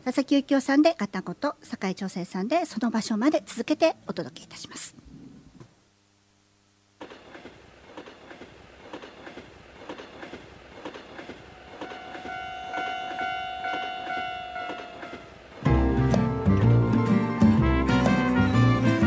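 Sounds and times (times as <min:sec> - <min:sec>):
train wheels clattering: 0:07.0 - 0:15.8
train horn: 0:11.4 - 0:15.7, 0:17.6 - 0:19.0.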